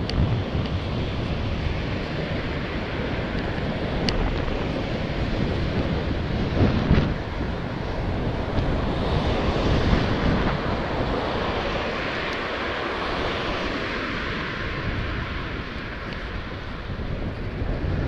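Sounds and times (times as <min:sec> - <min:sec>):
wind rush on microphone: 0:00.0 - 0:18.0.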